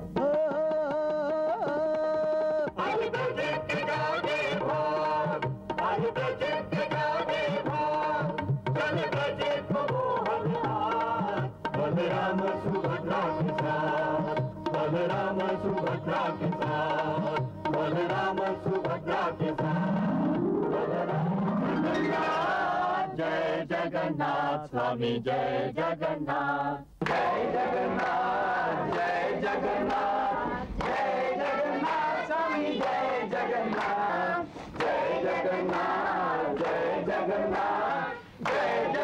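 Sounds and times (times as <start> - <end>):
group singing a chant: 1.2 - 39.0
musical accompaniment: 17.0 - 23.5.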